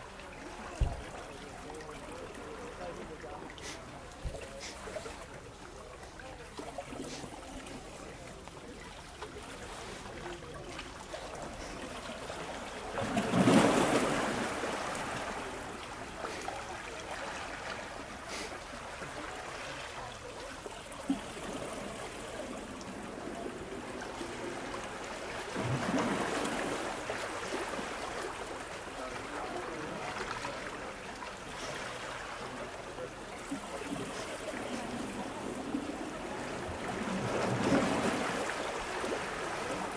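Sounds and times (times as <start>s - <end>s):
waves washing against rocks: 9.6s - 19.7s, 21.3s - 39.9s.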